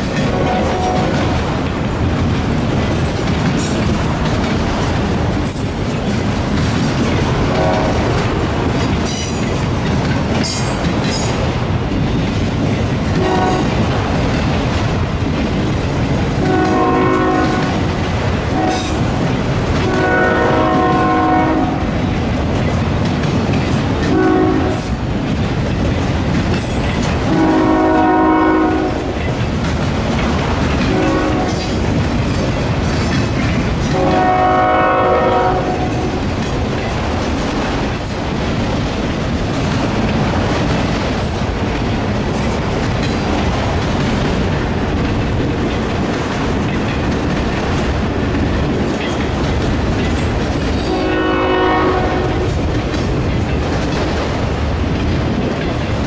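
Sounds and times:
freight train rumbling: 0:00.0 - 0:56.0
wheels clattering over rail joints: 0:00.0 - 0:56.0
locomotive air horn: 0:00.3 - 0:01.1, 0:07.5 - 0:08.0, 0:13.2 - 0:13.7, 0:16.4 - 0:17.8, 0:19.8 - 0:21.9, 0:24.1 - 0:24.8, 0:27.3 - 0:29.1, 0:30.9 - 0:31.7, 0:33.9 - 0:36.2, 0:50.9 - 0:52.5.

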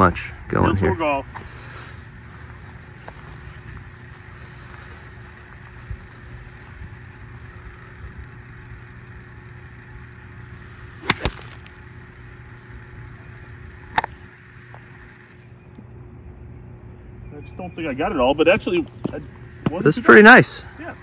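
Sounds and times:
golf club striking ball: 0:10.9 - 0:12.0.

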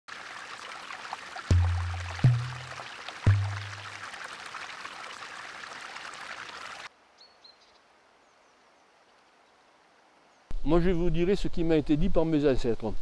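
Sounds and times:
river water rushing: 0:00.1 - 0:06.9.

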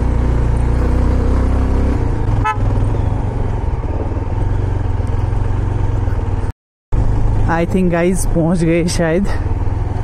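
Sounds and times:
motorcycle engine running: 0:00.0 - 0:10.0
horn beep: 0:02.4 - 0:03.1.

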